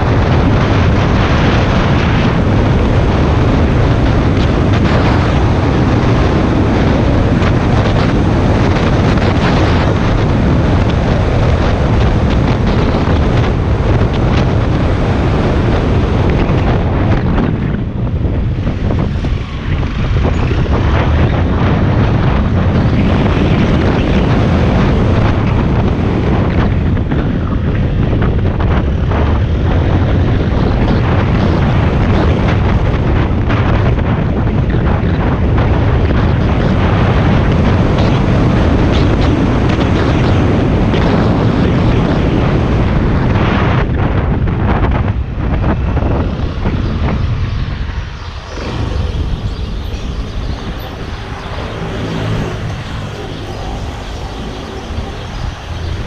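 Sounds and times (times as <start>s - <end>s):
wind noise on microphone: 0.0s - 56.0s
motorcycle engine running: 44.1s - 56.0s.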